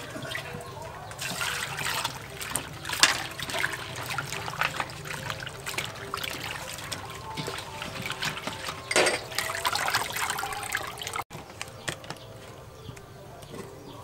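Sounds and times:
shrimp swishing through water: 0.0s - 11.2s
water dripping into bowl: 0.0s - 11.2s
water splash: 0.0s - 11.3s.

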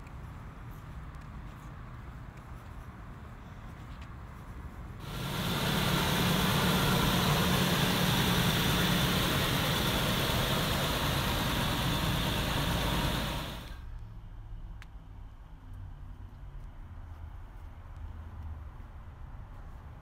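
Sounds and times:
truck engine idling: 5.0s - 13.8s.

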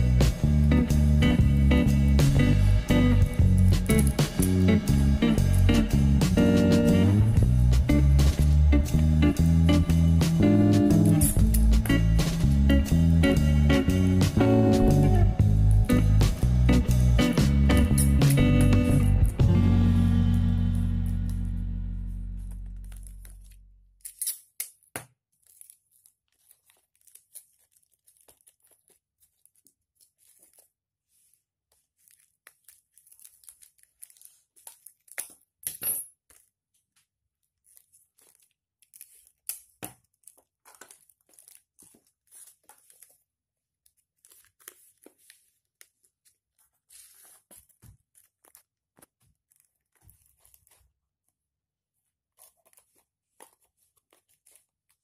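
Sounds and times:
cardboard crinkling and rustling: 24.8s - 35.6s, 36.2s - 55.0s.

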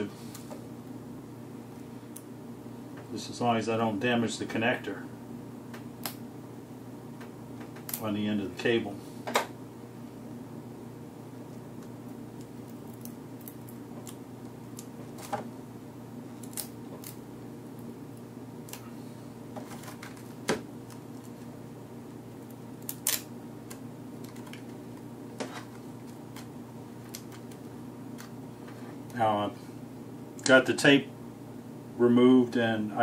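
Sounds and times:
steady background hum: 0.0s - 33.0s
tape peeling clicks and crackles: 7.6s - 8.1s, 11.8s - 15.5s, 16.4s - 17.9s, 22.3s - 28.4s.

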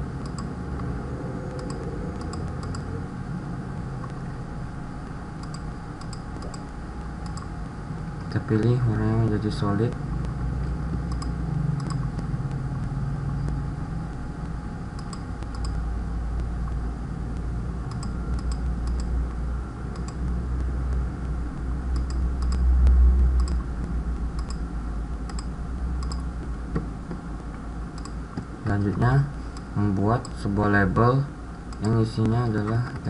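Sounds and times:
steady low hum: 0.0s - 33.0s
computer mouse clicks: 0.2s - 0.9s, 1.5s - 2.9s, 5.4s - 7.5s, 10.2s - 13.6s, 15.0s - 15.8s, 17.9s - 19.1s, 19.9s - 21.0s, 21.9s - 30.4s, 31.7s - 33.0s.

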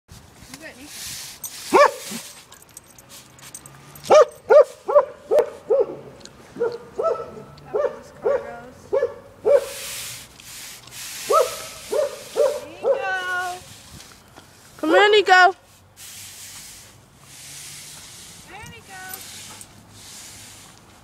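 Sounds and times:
scratchy brushing noise: 0.4s - 2.5s, 9.6s - 21.0s
dog barking: 1.7s - 2.2s, 4.1s - 9.8s, 11.3s - 13.1s.

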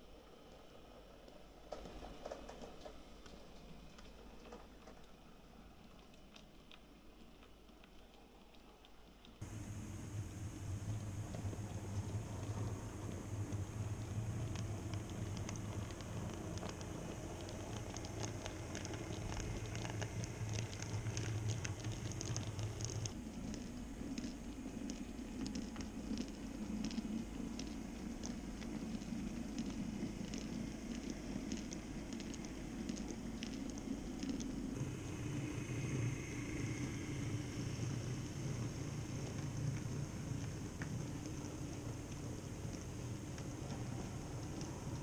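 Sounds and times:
low motor hum: 9.4s - 45.0s.

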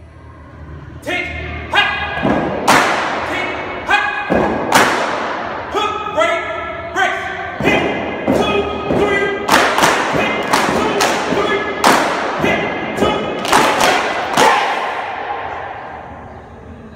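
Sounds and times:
stomping and clapping in unison: 2.2s - 3.3s, 4.3s - 5.4s, 7.6s - 15.2s
group chanting: 9.9s - 16.1s.

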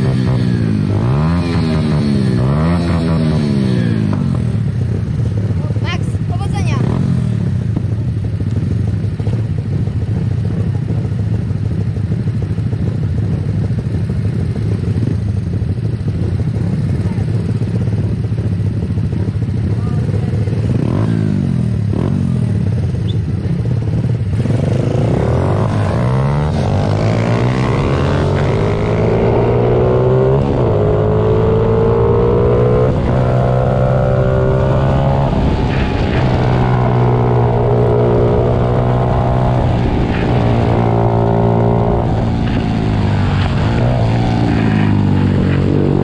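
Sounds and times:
pit bike engines revving: 0.0s - 8.0s, 19.0s - 46.0s.

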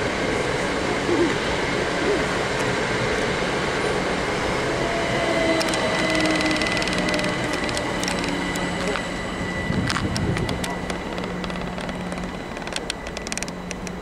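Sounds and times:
train wheels rumbling on rail: 0.0s - 14.0s
rapid clicking: 5.6s - 9.1s, 9.8s - 14.0s.

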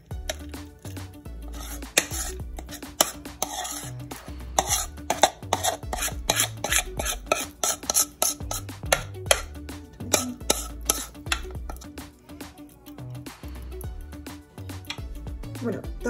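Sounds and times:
background music with beat: 0.0s - 16.0s
utensil scraping batter from bowl: 0.3s - 9.5s, 10.1s - 12.0s.

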